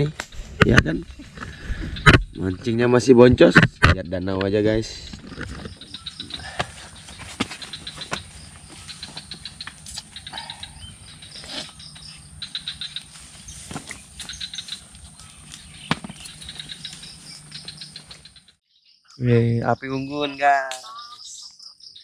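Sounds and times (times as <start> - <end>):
crickets chirping: 0.0 - 3.3, 4.1 - 22.0
high insect drone: 5.3 - 18.4.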